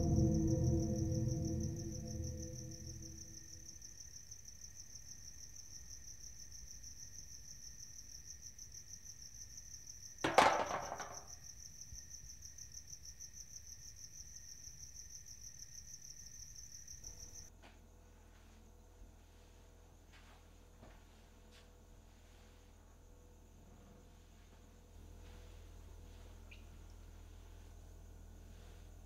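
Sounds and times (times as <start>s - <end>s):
loud ringing hit: 0.0s - 3.7s
crickets chirping: 0.0s - 29.0s.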